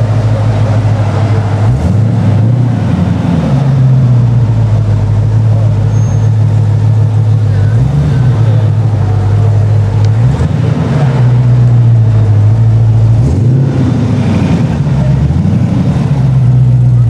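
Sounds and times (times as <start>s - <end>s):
car engine running at low revs: 0.0s - 17.0s.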